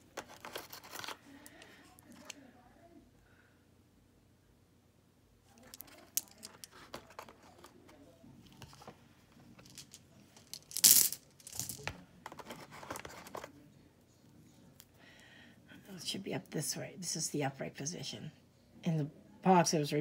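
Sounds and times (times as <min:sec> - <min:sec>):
stones clicking and tapping: 0:09.6 - 0:12.0.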